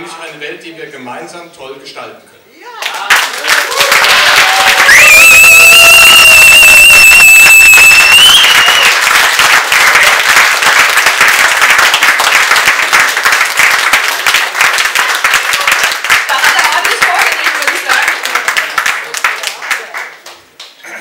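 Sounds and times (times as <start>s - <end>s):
audience applauding: 2.8s - 20.8s
loud whistle: 4.9s - 9.0s.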